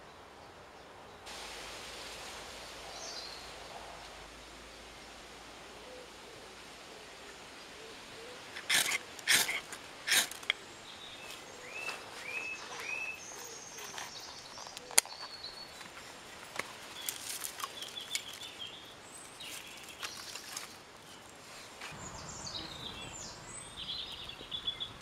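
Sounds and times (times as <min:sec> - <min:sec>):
woodland birds calling: 0:07.6 - 0:21.2, 0:21.8 - 0:25.0
twigs rustling: 0:08.4 - 0:22.0
scraping strikes: 0:08.6 - 0:10.6.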